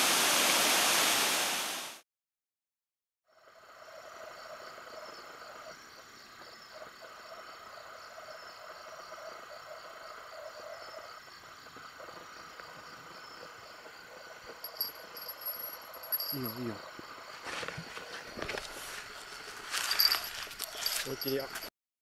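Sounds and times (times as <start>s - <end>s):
river hiss: 0.0s - 2.0s
frogs and insects trilling: 3.3s - 21.6s.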